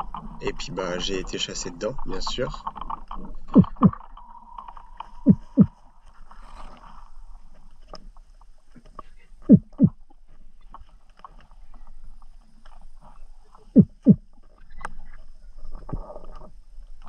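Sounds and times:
faint steady hum: 0:00.0 - 0:17.0
low underwater thumps: 0:02.7 - 0:04.3, 0:05.2 - 0:05.8, 0:09.5 - 0:10.0, 0:13.8 - 0:14.3.

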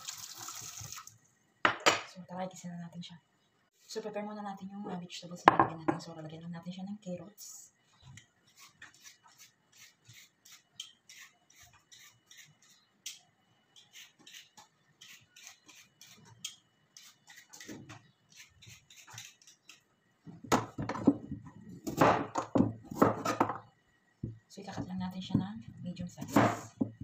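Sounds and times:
peeler scraping carrot skin: 0:08.5 - 0:13.2, 0:13.8 - 0:19.8.

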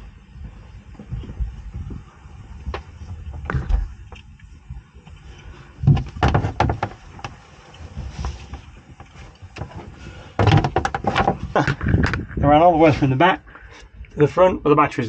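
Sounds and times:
cables knocking and scraping: 0:02.6 - 0:13.1.

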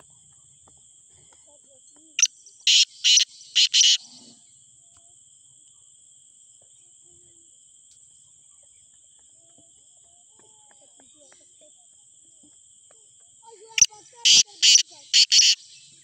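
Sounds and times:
crickets chirring: 0:00.0 - 0:16.0
bird giving harsh call notes: 0:02.7 - 0:04.2, 0:13.8 - 0:15.8.

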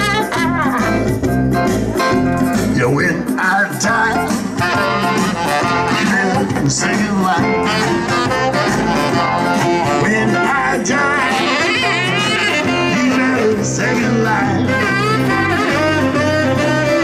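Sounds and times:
saxophone melody: 0:00.0 - 0:02.6, 0:03.9 - 0:17.0
acoustic guitar: 0:00.0 - 0:17.0
keyboards: 0:00.0 - 0:17.0
stepping bass line: 0:00.0 - 0:17.0.

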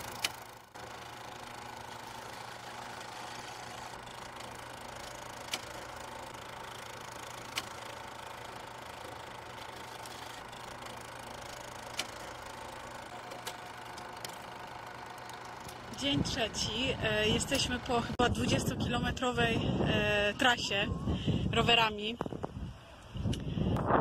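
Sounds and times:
sharp projector clicks: 0:00.0 - 0:18.0
film projector whirring: 0:00.0 - 0:20.8.

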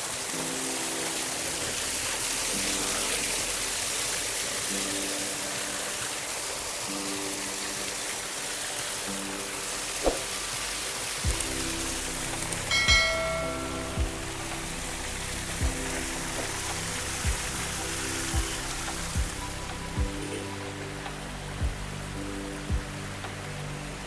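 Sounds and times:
soft background music: 0:00.0 - 0:24.0
waterfall rushing over rock: 0:00.0 - 0:24.0.

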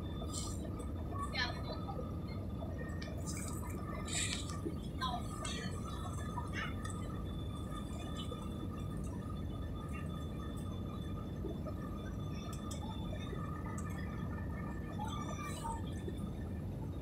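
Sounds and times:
jet airliner cabin rumble: 0:00.0 - 0:17.0
steady whine: 0:00.0 - 0:17.0.

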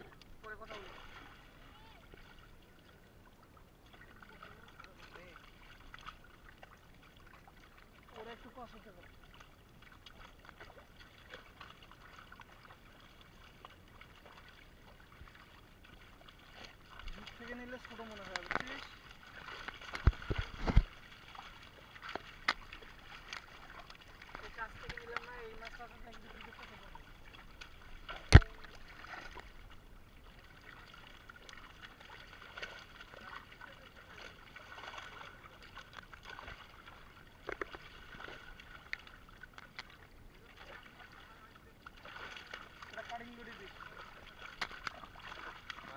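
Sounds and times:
fish splashing in a net: 0:00.0 - 0:02.4, 0:09.1 - 0:45.9.

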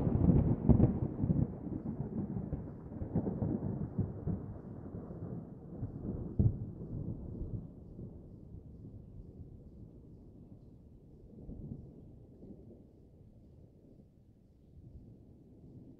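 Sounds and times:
thunder rumbling: 0:00.0 - 0:07.8.

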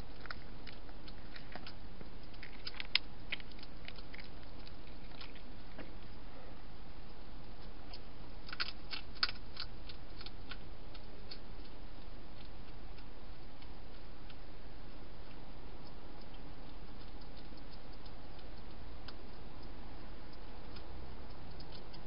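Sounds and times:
steady background hiss: 0:00.0 - 0:22.0
cat crunching dry food: 0:00.1 - 0:05.8, 0:07.9 - 0:14.4.

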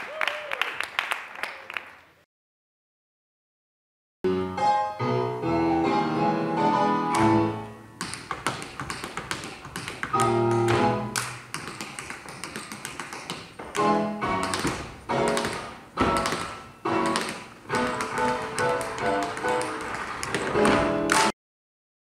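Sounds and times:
tap shoes clicking on tabletop: 0:08.0 - 0:21.3.

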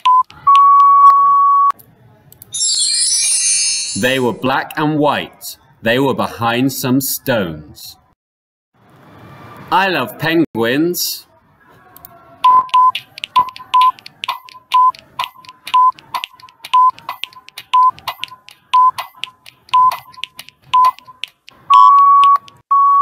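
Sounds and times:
timer ticking: 0:12.5 - 0:22.6
short beeps: 0:18.8 - 0:19.0, 0:19.7 - 0:23.0.

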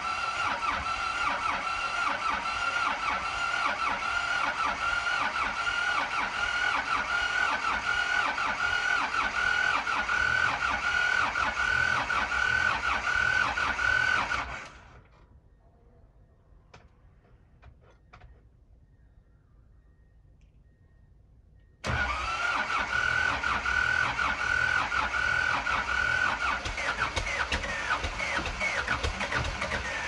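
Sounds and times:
electric starter cranking engine: 0:00.0 - 0:15.1, 0:21.8 - 0:30.0.

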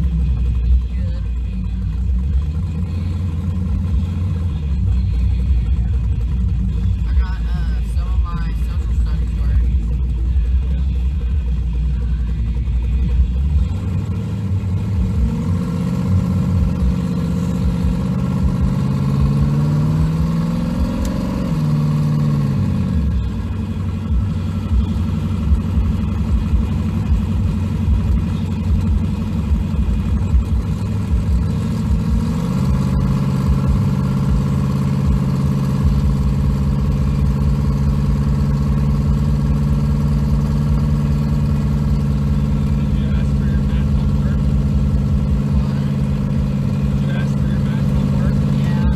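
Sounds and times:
truck engine revving: 0:00.0 - 0:48.9.

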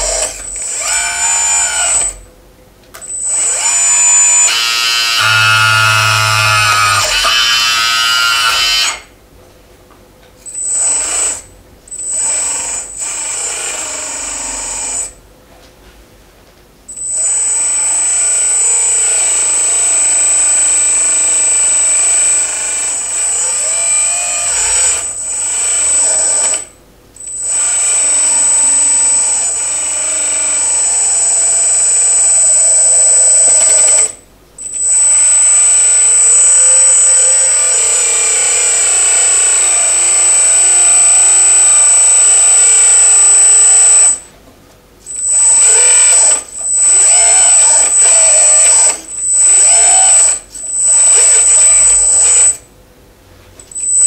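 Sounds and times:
electric hydraulic pump whining: 0:00.0 - 0:02.2, 0:03.1 - 0:09.1.

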